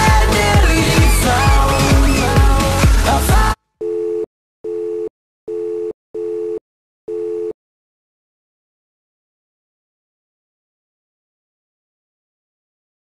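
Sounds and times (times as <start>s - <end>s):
pop song: 0.0s - 3.6s.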